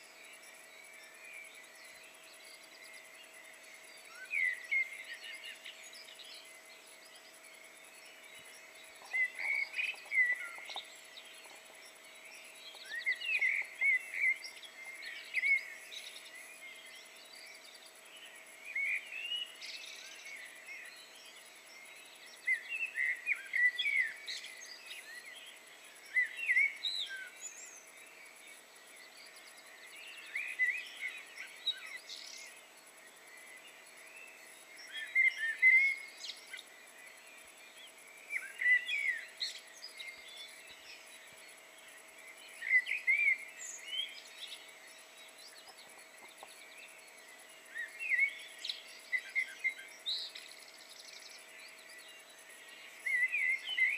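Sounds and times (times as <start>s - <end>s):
faint steady background noise: 0.0s - 53.9s
songbirds chirping and whistling: 0.0s - 53.9s.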